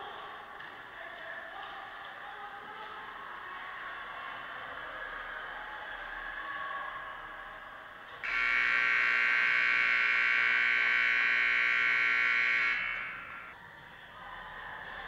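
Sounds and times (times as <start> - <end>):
game horn buzzing blast: 8.2 - 13.5.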